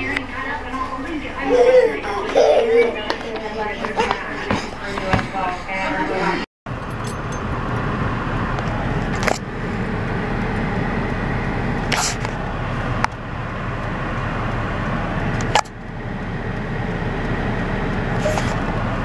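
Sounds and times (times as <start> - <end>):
car road and engine noise: 0.0 - 19.0.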